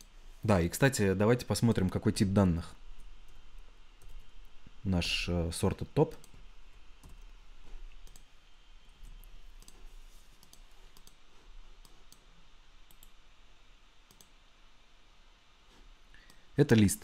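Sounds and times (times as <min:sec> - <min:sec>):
low steady hum: 0:00.0 - 0:17.0
computer mouse clicks: 0:07.0 - 0:07.3, 0:07.9 - 0:08.3, 0:09.0 - 0:11.2, 0:11.8 - 0:13.2, 0:14.0 - 0:14.4.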